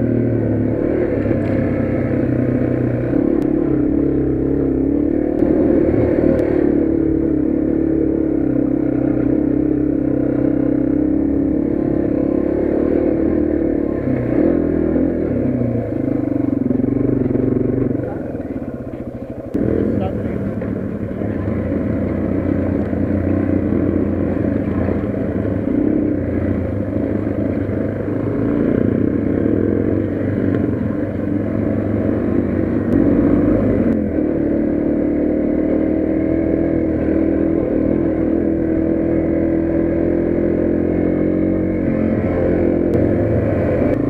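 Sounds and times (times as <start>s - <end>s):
motorcycle engine running: 0.0s - 44.0s.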